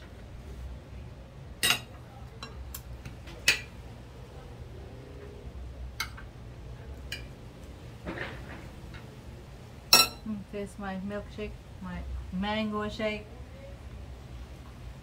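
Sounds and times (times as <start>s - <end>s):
low steady hum: 0.0s - 15.0s
cutlery clinking on plates: 1.6s - 2.6s, 9.9s - 10.2s.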